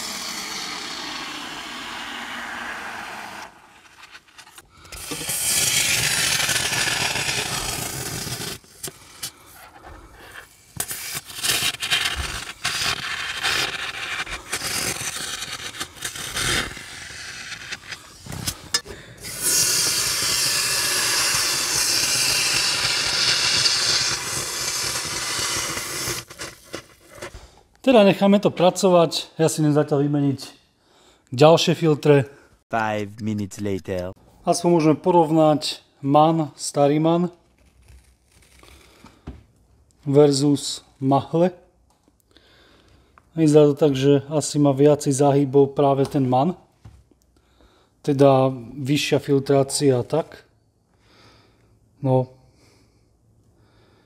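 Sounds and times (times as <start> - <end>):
aerosol spray hissing: 0.0 - 3.6, 19.2 - 26.7.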